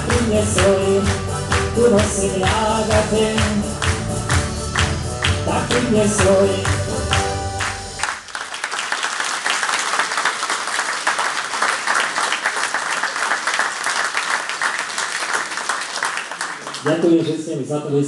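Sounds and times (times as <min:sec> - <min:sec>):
song with steady beat: 0:00.0 - 0:08.1
audience applauding: 0:00.0 - 0:17.3.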